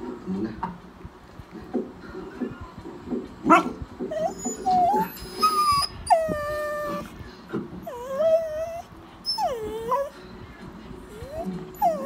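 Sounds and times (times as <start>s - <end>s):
dog whining and yowling: 4.1s - 7.2s, 7.8s - 10.2s, 11.1s - 12.0s.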